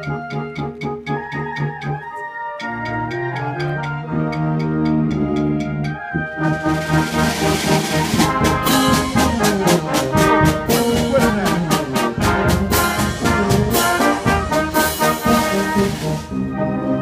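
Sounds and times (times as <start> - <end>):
brass marching band playing: 0.0 - 17.0
bass drum and cymbal beat: 6.4 - 16.4.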